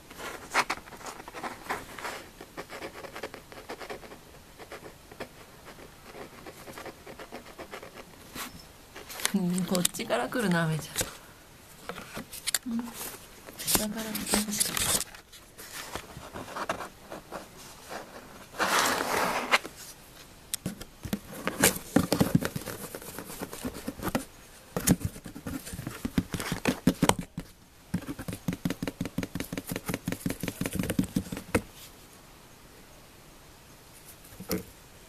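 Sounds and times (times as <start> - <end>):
kitten scratching cardboard box: 0.2 - 9.8, 13.5 - 20.0, 20.6 - 31.8.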